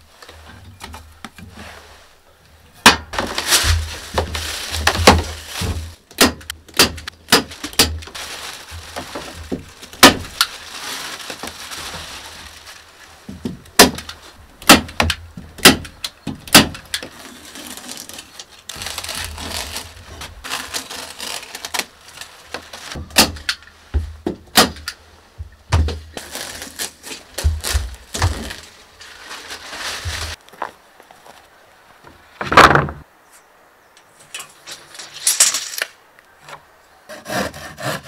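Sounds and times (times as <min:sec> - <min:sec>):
plastic sheet crinkling: 0:03.1 - 0:14.4, 0:16.8 - 0:23.7, 0:25.8 - 0:30.4.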